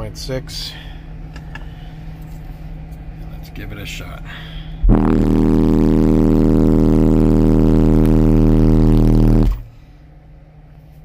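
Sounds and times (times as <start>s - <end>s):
deep buzzing subwoofer tone: 4.8s - 9.8s.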